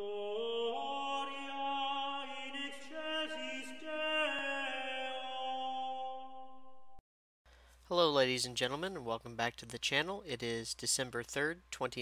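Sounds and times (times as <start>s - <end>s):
sung chant in long notes: 0.0s - 6.4s.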